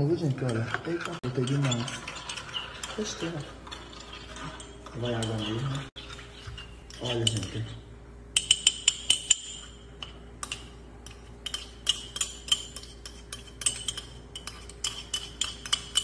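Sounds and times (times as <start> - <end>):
metal spoon clinking on ceramic cup: 8.4 - 16.0.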